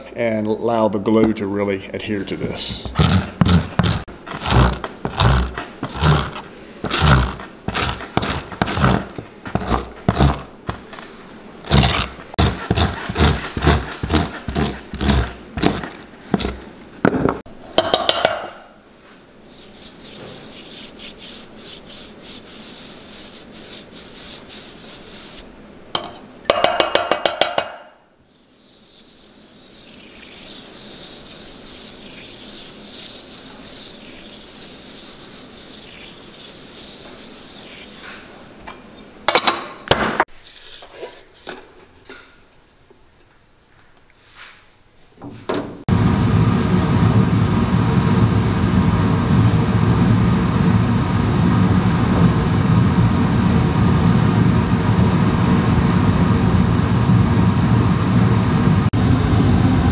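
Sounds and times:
soft brushing of glue: 2.7s - 16.6s, 19.0s - 25.5s, 28.3s - 38.4s
wire brush scraping boot sole: 2.9s - 16.7s.

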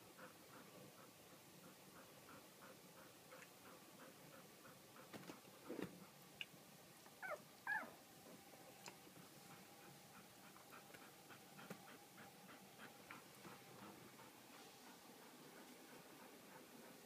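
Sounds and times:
puppy squeaking: 7.2s - 7.9s.

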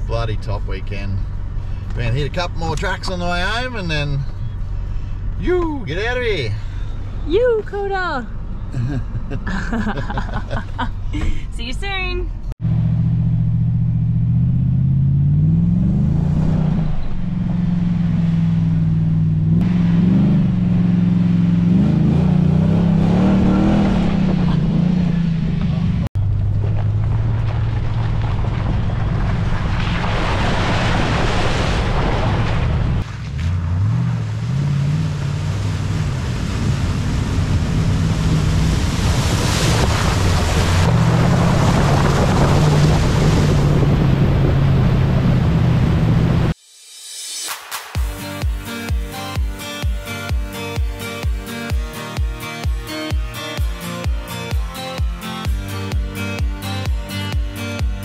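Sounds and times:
vehicle engine revving: 12.6s - 31.1s, 32.2s - 46.6s
wind noise: 35.3s - 46.6s.

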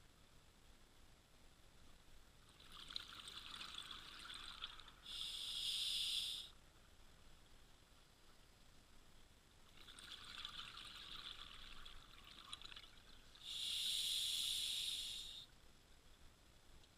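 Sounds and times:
regulator inhale hiss: 5.0s - 6.6s, 13.4s - 15.5s.

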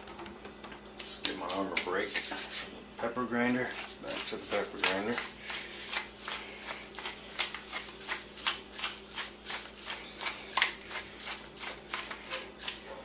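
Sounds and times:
pepper grinder crunching: 3.7s - 13.0s.

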